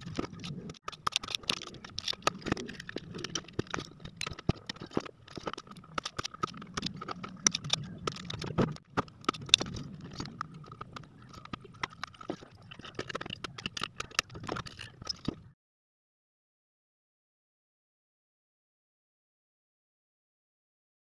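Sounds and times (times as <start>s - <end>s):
tools and parts clicking on workbench: 0.0s - 15.5s.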